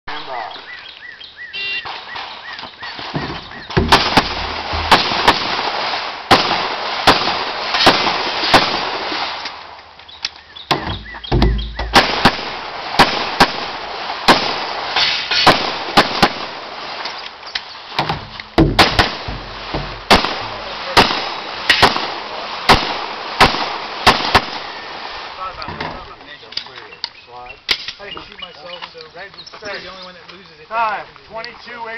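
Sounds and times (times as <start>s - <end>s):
handgun shots: 10.7s - 13.7s, 18.0s - 22.0s.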